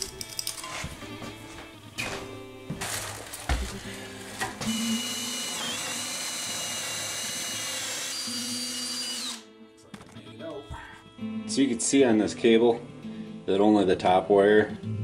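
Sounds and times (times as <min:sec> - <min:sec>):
cordless drill boring into wood: 0:04.6 - 0:09.5.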